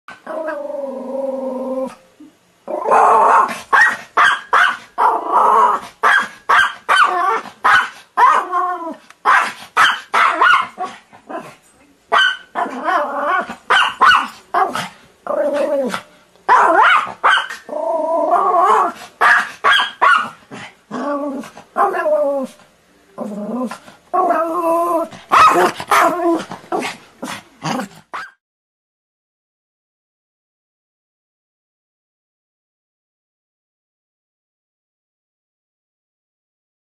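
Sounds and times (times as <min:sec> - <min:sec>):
small dog barking: 0:02.9 - 0:05.2, 0:06.0 - 0:08.5, 0:09.2 - 0:11.0, 0:12.1 - 0:12.8, 0:13.7 - 0:14.8, 0:16.5 - 0:17.7, 0:18.7 - 0:20.4, 0:21.8 - 0:22.1, 0:25.3 - 0:26.9, 0:28.1 - 0:28.4.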